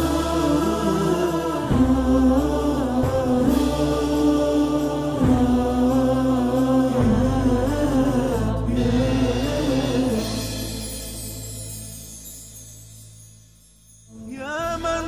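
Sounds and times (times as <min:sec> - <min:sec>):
choir chanting long notes: 0:00.0 - 0:11.0
low shifting drone: 0:00.0 - 0:12.0.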